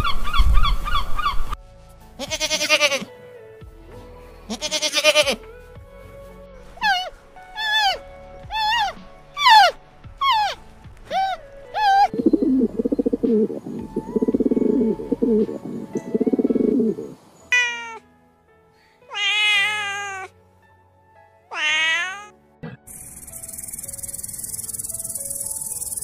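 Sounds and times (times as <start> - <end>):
kitten meowing: 19.1 - 20.3, 21.5 - 22.3.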